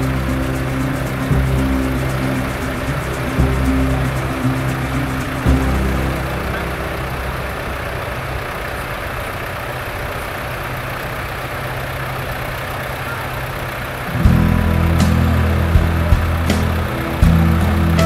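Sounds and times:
louder engine: 0:00.0 - 0:18.0
tractor diesel engine running: 0:00.0 - 0:18.0.

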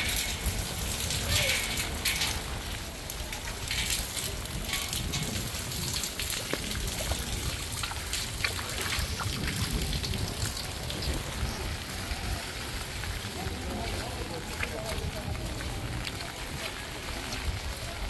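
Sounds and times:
small sharp splashes: 0:00.0 - 0:11.3.

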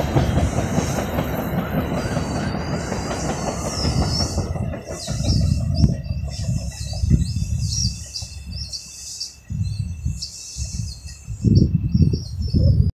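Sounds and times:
small birds chirping: 0:01.6 - 0:12.9.

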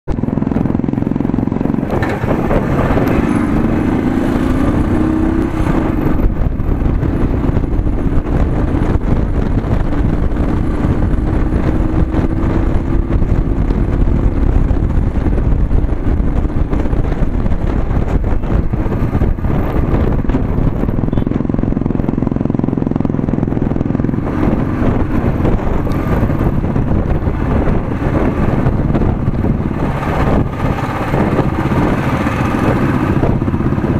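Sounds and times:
motorcycle engine running: 0:00.1 - 0:33.9
wind rumble on microphone: 0:00.1 - 0:33.9.

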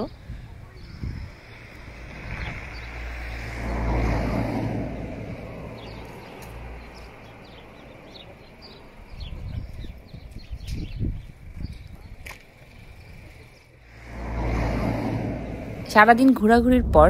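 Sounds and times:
car driving past: 0:01.2 - 0:08.3, 0:13.8 - 0:17.0.

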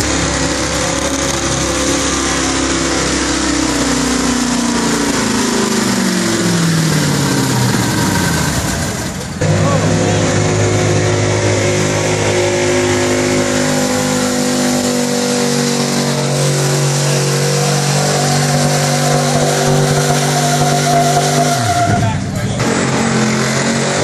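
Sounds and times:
truck engine at high revs: 0:00.0 - 0:24.0.

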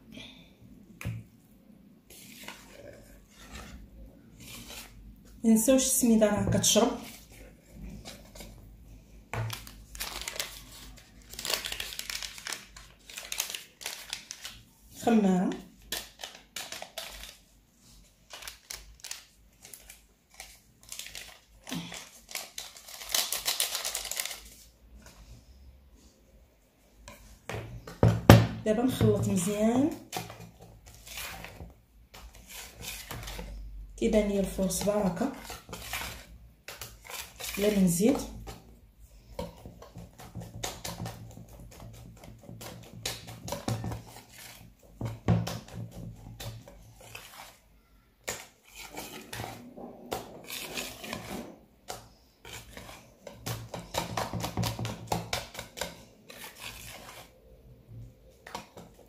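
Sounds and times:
whisk beating batter in a bowl: 0:29.2 - 0:47.6, 0:48.2 - 0:49.6, 0:50.2 - 0:57.8.

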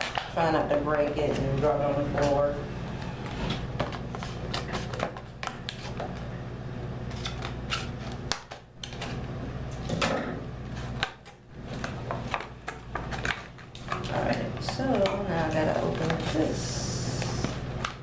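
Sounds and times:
low steady hum: 0:00.0 - 0:18.0
rigid plastic crackling: 0:10.7 - 0:18.0.

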